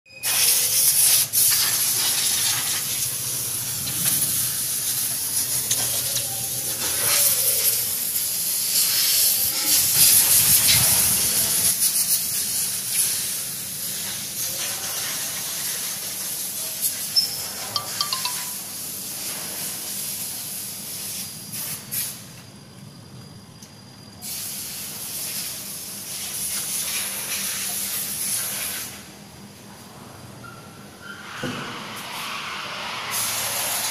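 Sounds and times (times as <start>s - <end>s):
loud steady hiss: 0.1s - 23.5s, 24.1s - 29.9s, 31.2s - 33.9s
diesel engine running: 2.2s - 7.1s.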